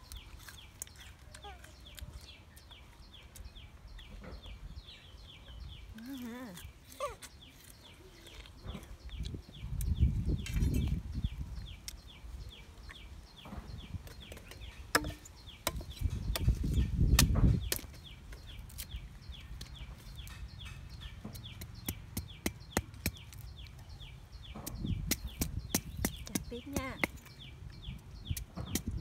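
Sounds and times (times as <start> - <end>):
knife chopping sugarcane: 14.9 - 18.0, 21.3 - 23.5, 24.6 - 27.3.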